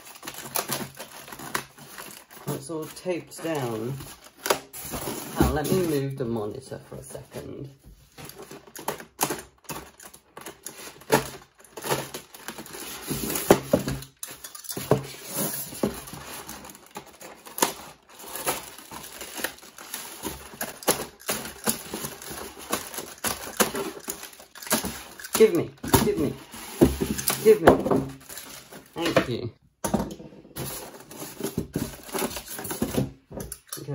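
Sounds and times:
plastic wrap crinkling: 0.0 - 6.2, 8.3 - 29.0.

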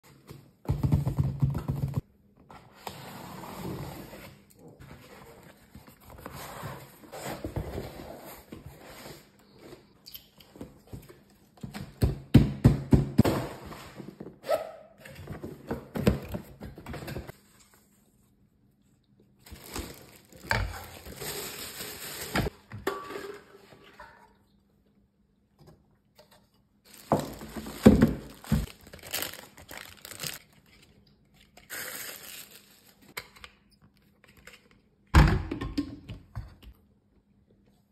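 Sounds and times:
plastic wrapping crinkling: 19.4 - 22.5, 26.9 - 33.2
cardboard and paper handling: 26.9 - 33.0.

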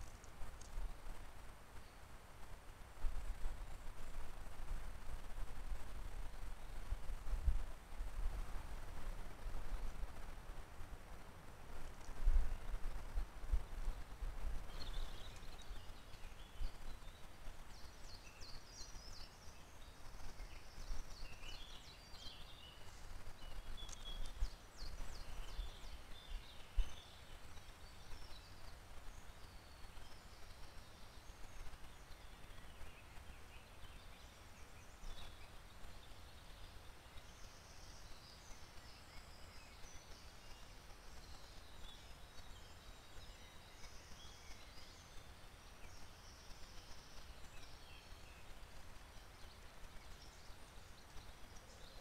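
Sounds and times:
faint low rumble: 0.0 - 52.0
songbirds chirping and singing: 12.0 - 52.0.

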